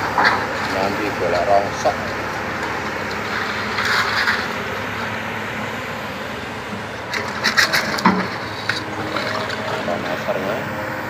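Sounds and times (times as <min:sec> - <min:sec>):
bucket clattering on concrete rubble: 0:00.0 - 0:02.0, 0:07.0 - 0:10.6
excavator diesel engine running: 0:00.0 - 0:11.0.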